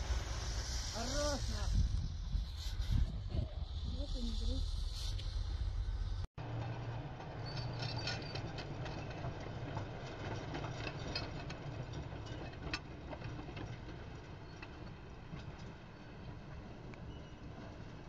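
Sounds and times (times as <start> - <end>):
diesel engine rumbling: 0.0 - 14.4
clicks and clanks of tracks: 6.4 - 18.0.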